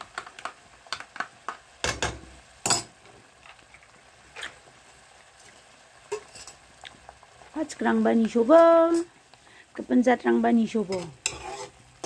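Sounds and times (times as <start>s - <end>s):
paste scraped into pan: 11.0s - 11.9s.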